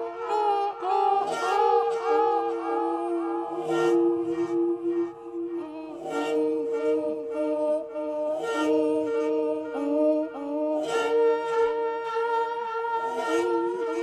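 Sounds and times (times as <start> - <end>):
person humming: 0.0 - 14.0.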